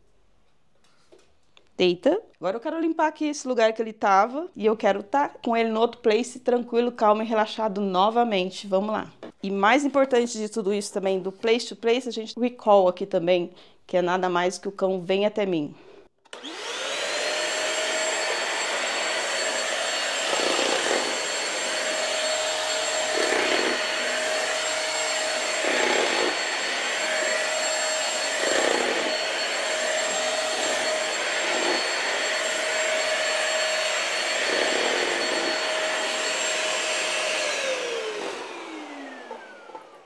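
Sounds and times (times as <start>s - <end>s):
vacuum cleaner running: 16.3s - 40.0s
vacuum motor winding down: 16.3s - 40.0s.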